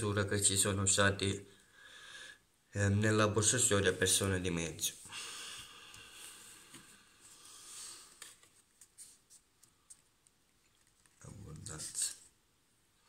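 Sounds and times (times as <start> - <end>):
cards rustling and sliding: 6.6 - 10.1.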